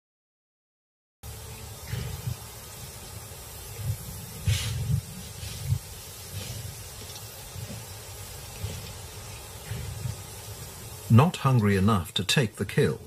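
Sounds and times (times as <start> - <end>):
lion hissing: 1.3 - 11.3
dry grass swishing: 1.8 - 11.0.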